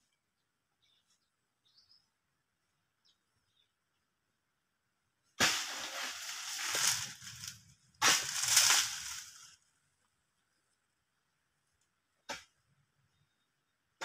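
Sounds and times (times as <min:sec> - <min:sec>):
dry palm fronds crashing and crackling: 0:05.4 - 0:09.6.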